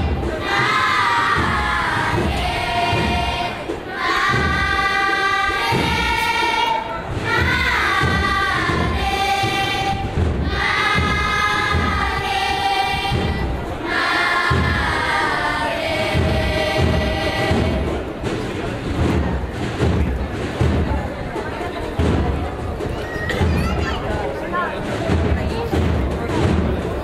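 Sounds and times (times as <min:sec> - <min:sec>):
children's choir singing: 0:00.0 - 0:19.2.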